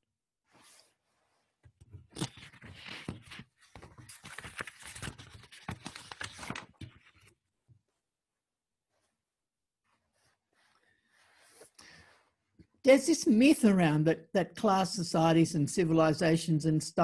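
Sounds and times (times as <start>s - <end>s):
crinkly rustling handling noise: 2.1s - 7.4s.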